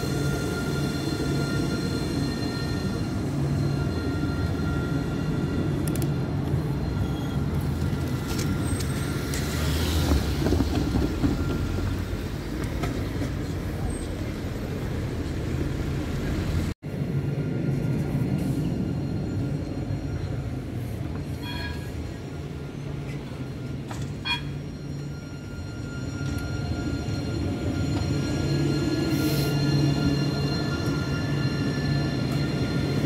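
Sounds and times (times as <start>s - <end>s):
tram rumbling: 0.0s - 33.0s.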